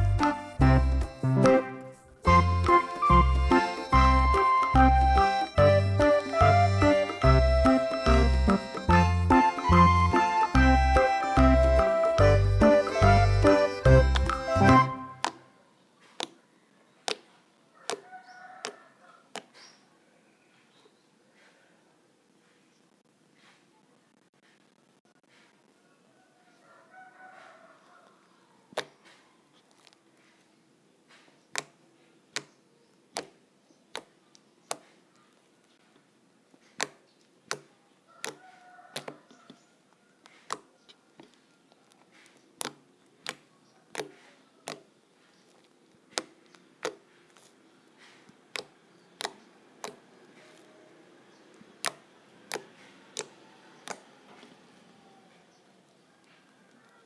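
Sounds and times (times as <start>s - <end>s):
slime squishing: 17.0s - 19.6s, 33.1s - 35.5s, 36.5s - 39.3s, 40.2s - 50.7s, 51.6s - 54.6s
slime popping clicks: 48.5s - 50.0s, 51.8s - 54.0s.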